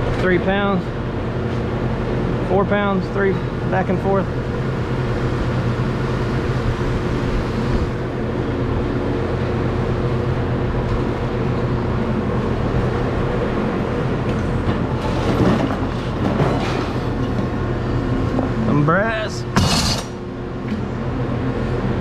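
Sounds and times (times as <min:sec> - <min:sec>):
constant hum: 0:00.0 - 0:22.0
machinery low drone: 0:00.0 - 0:22.0.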